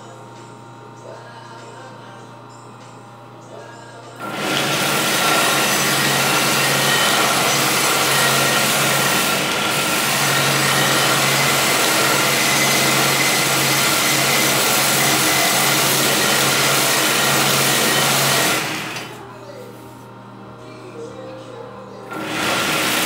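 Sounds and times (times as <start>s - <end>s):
belt sander motor whine: 4.2s - 19.3s, 22.1s - 23.0s.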